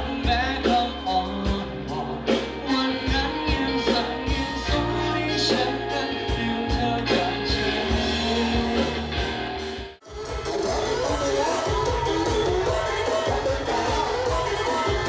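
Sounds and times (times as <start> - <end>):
man singing into microphone: 0.0 - 9.1
band with steady drum beat: 0.0 - 15.0.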